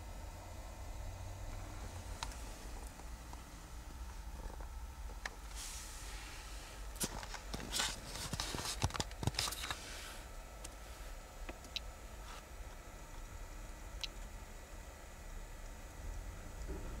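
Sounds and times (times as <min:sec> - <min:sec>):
low steady hum: 0:00.0 - 0:17.0
clicks and crackles: 0:07.0 - 0:09.8.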